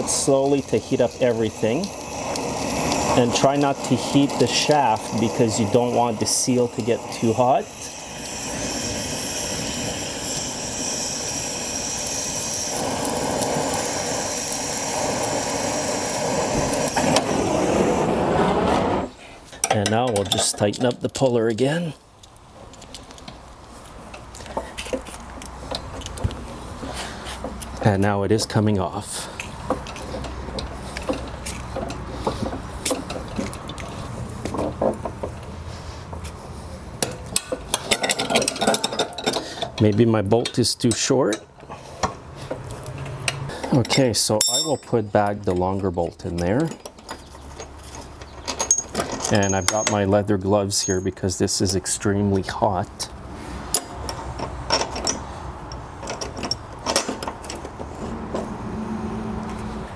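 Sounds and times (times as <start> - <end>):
torch flame hissing: 0.0 - 19.5
metallic clicks and clinks: 42.9 - 45.7, 46.3 - 51.8.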